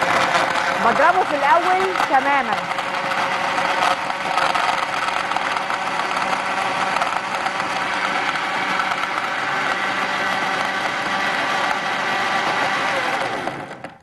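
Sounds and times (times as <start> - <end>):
blender running: 0.0 - 14.0.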